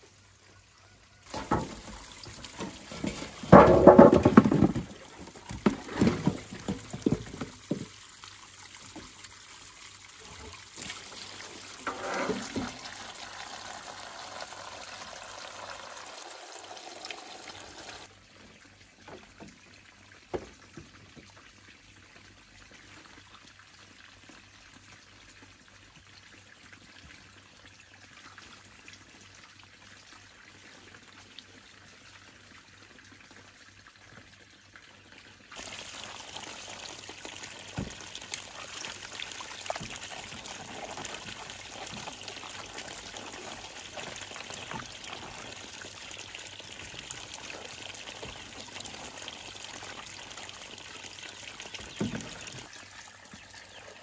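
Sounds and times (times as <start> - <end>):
water running and pouring: 1.2 - 18.1, 35.5 - 54.0.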